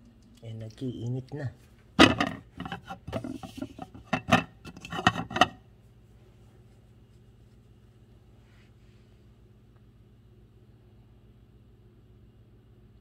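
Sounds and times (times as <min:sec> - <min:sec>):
faint low hum: 0:00.0 - 0:13.0
knocks and clinks on glass lid: 0:02.0 - 0:05.6.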